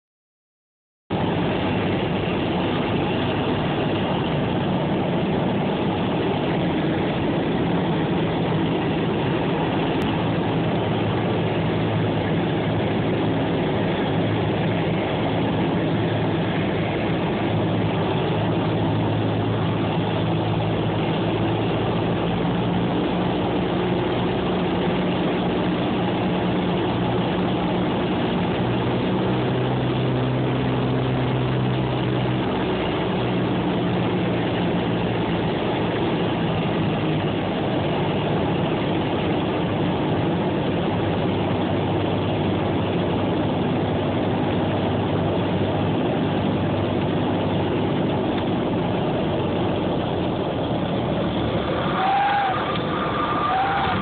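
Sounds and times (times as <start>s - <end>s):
propeller plane engine droning: 1.1s - 54.0s.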